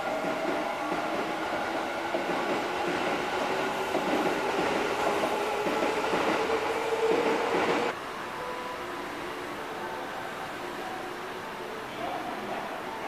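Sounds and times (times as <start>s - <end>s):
train wheels clattering: 0.0s - 7.9s.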